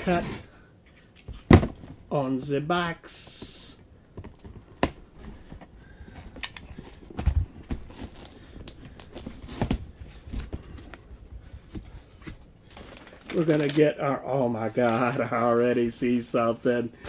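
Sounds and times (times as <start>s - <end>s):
cardboard rustling: 4.2s - 16.9s.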